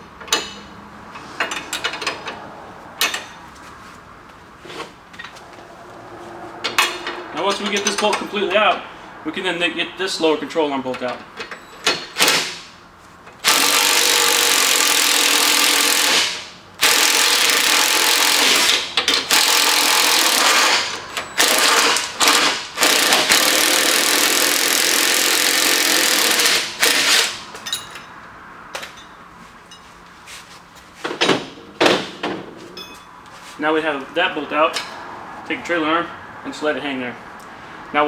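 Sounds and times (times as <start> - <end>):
impact driver running: 13.4 - 27.4.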